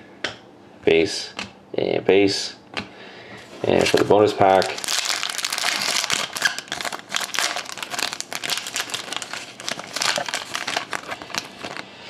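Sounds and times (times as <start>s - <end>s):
foil wrapper crinkling and tearing: 3.7s - 11.9s.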